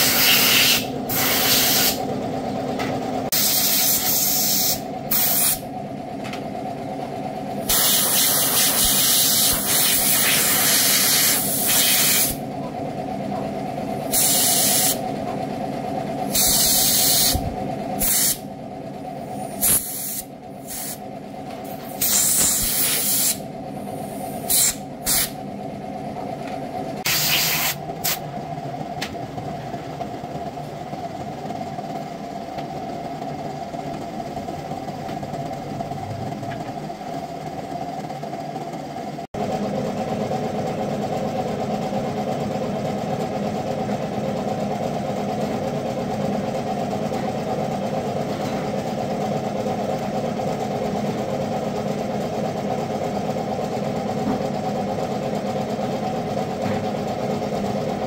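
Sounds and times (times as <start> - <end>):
compressed air blow gun hissing: 22.0 - 23.4.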